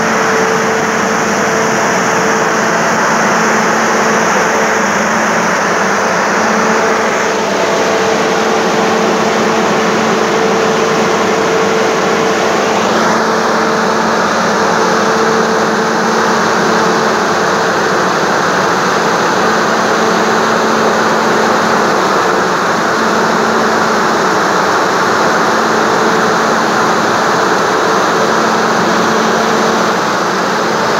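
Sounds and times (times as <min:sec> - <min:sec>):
fan hum: 0:00.0 - 0:30.9
large fan rushing air: 0:00.0 - 0:30.9.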